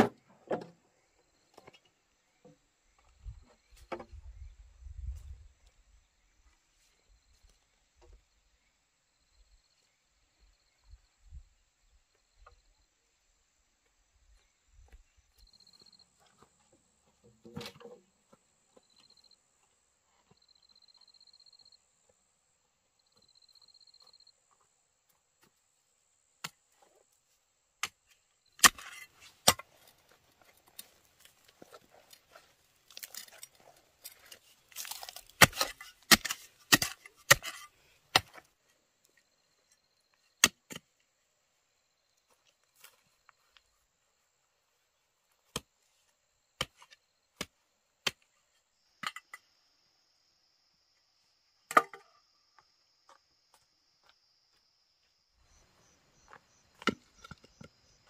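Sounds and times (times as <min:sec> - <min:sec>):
blade chopping into wood: 0:28.6 - 0:29.7, 0:34.8 - 0:38.4.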